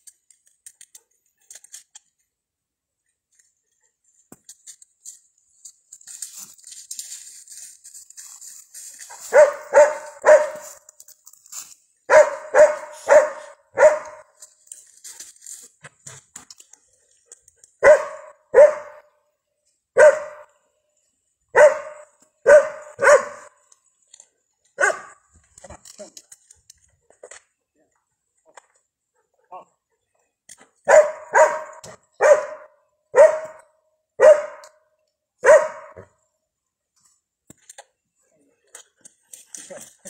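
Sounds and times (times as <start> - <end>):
dog barking: 9.3 - 10.8, 12.1 - 14.3, 17.8 - 19.1, 20.0 - 20.5, 21.5 - 23.5, 24.8 - 25.2, 30.8 - 33.6, 34.2 - 34.8, 35.4 - 36.1.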